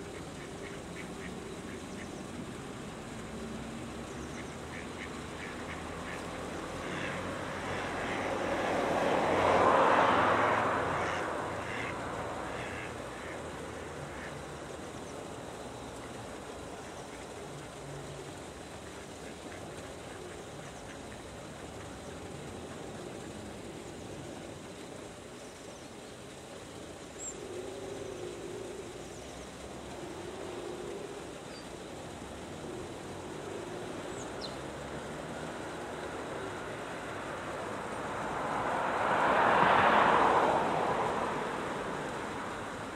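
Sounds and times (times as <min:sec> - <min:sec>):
distant traffic hum: 0:00.0 - 0:42.9
passing vehicle engine rushing: 0:03.3 - 0:15.5, 0:32.6 - 0:42.9
ducks quacking: 0:04.4 - 0:08.3, 0:11.0 - 0:13.4.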